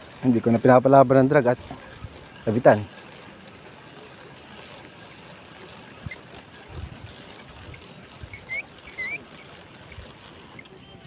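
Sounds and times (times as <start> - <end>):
small clicks: 4.3 - 10.8.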